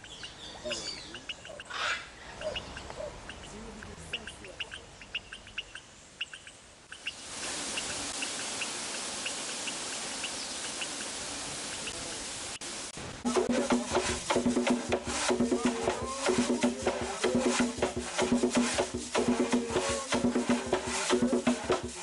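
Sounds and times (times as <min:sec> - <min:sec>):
waterfall rushing: 0:07.1 - 0:22.0.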